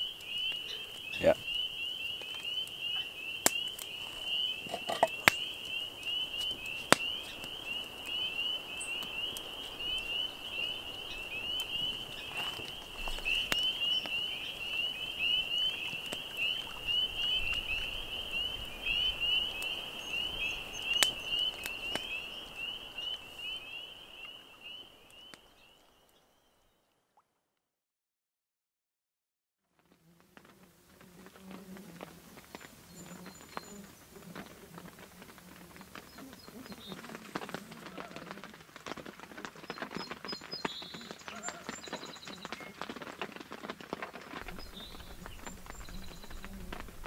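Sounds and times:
frogs peeping chorus: 0.0s - 26.4s, 32.2s - 43.5s, 44.4s - 47.0s
sharp pops: 2.2s - 7.6s.

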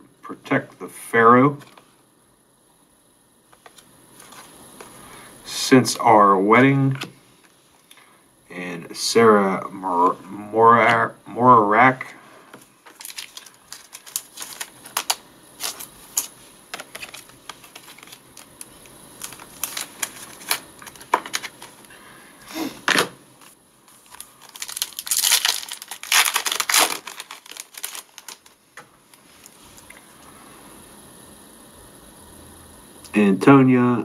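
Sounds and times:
cards and plastic sleeves rustling: 3.6s - 5.1s, 12.5s - 21.9s, 22.7s - 30.0s
foil pack tearing and crinkling: 12.8s - 21.9s, 23.4s - 28.6s.

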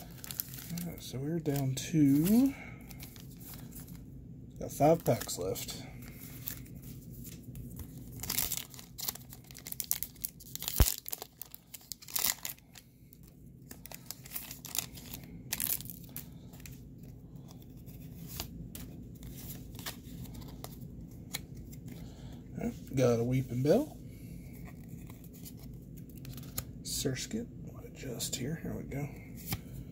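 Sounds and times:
foil wrapper tearing and crinkling: 0.0s - 3.7s, 8.1s - 12.8s, 13.7s - 16.4s
cards rustling: 0.0s - 4.0s, 4.7s - 23.5s, 24.5s - 26.8s.

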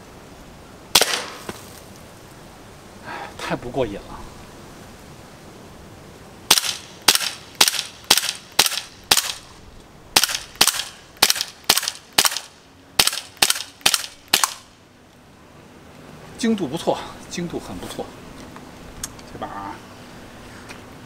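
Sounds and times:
airsoft pistol shots: 1.0s - 1.5s, 6.5s - 9.4s, 10.2s - 14.6s.

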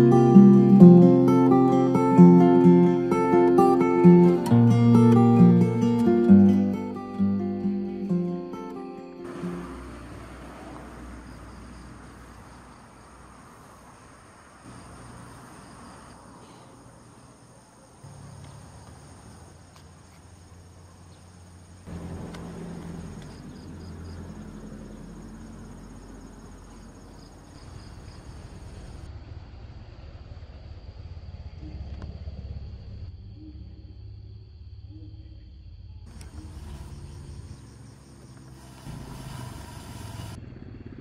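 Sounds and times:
crickets trilling: 0.0s - 40.4s
pulsed insect chirps: 31.3s - 40.4s.

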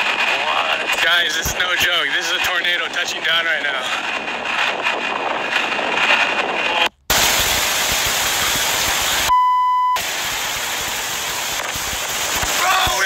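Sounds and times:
storm wind on microphone: 0.0s - 9.3s
censor bleep: 9.3s - 10.0s.

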